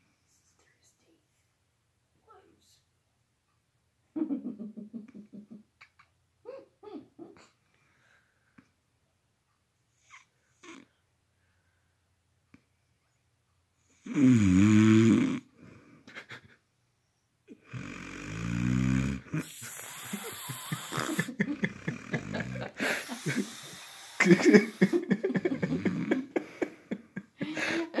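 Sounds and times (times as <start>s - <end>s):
man snoring loudly: 14.0s - 15.5s, 17.6s - 26.3s.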